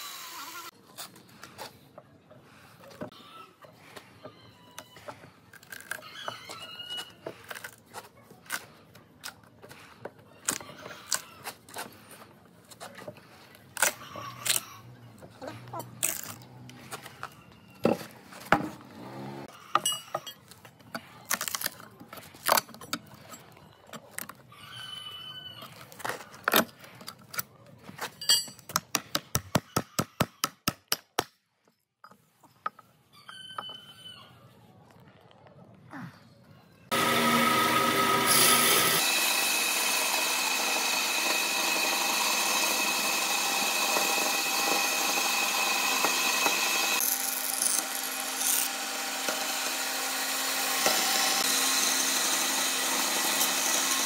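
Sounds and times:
wood cracking and splintering: 21.3s - 22.7s.

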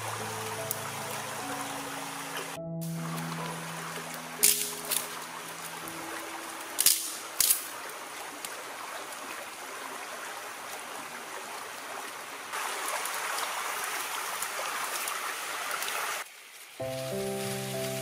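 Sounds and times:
stream running over rocks: 0.0s - 18.0s
twig fire burning: 2.8s - 5.8s, 6.6s - 7.9s
dry twigs snapping: 4.4s - 5.8s, 6.6s - 8.6s.

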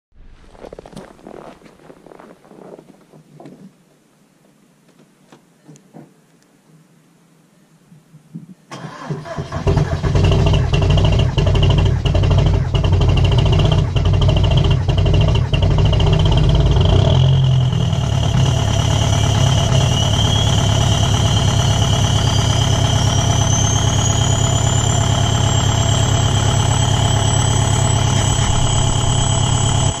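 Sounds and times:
diesel engine idling: 8.8s - 30.0s
thin high whistle: 19.1s - 30.0s.

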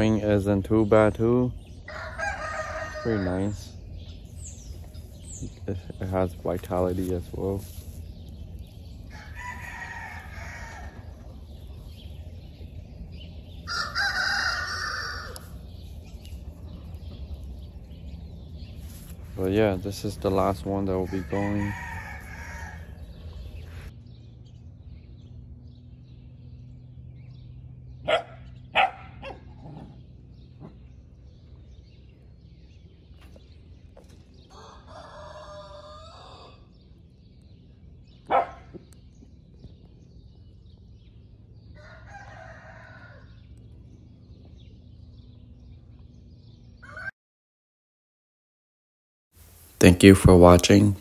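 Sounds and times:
bird calling: 0.0s - 23.9s
steady low hum: 0.0s - 34.9s.

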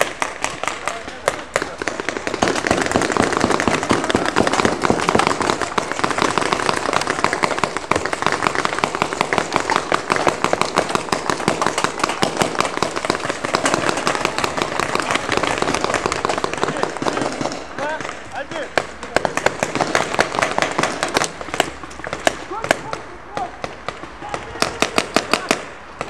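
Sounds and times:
paintball markers firing: 0.0s - 26.0s.

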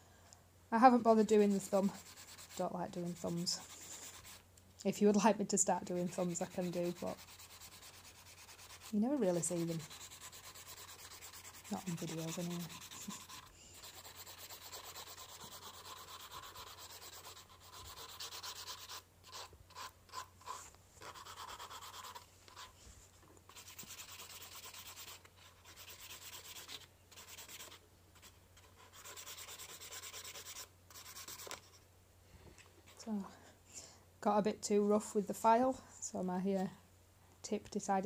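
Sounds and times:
nail file rubbing on nails: 1.3s - 4.4s, 5.9s - 22.8s, 23.5s - 31.8s.

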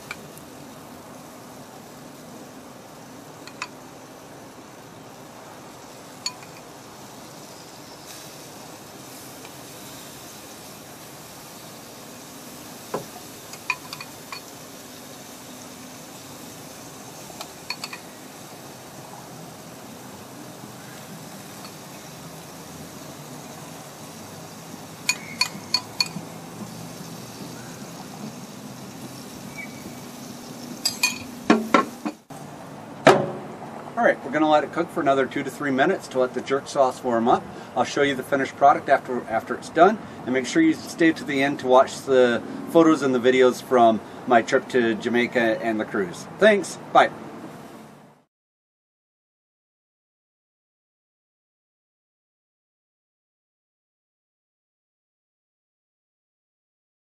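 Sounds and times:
chicken sizzling on grill: 0.0s - 48.0s
spoon clinking against bowl: 6.2s - 6.7s, 13.5s - 14.5s, 17.7s - 18.0s, 25.1s - 26.2s, 30.8s - 31.3s
spoon tapping a bowl: 25.1s - 26.2s
metal grill lid clanking shut: 30.8s - 32.2s, 33.0s - 33.5s.

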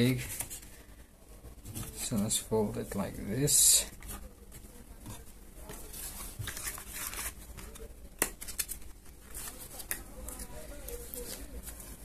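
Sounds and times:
cardboard rustling and crinkling: 3.8s - 12.0s.

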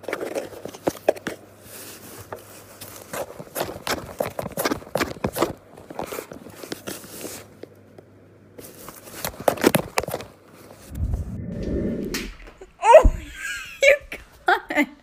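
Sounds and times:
muffled low rumble: 10.9s - 13.4s.

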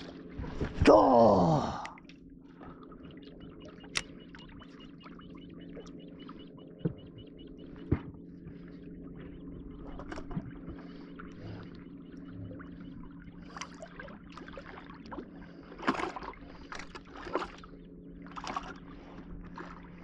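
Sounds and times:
water sloshing and splashing: 0.0s - 1.1s, 1.9s - 20.0s
steady low hum: 0.0s - 20.0s.

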